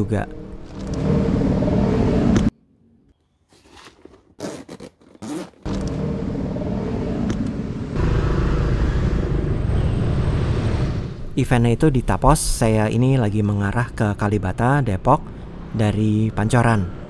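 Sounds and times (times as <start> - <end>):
rustling and scraping items: 3.5 - 5.6.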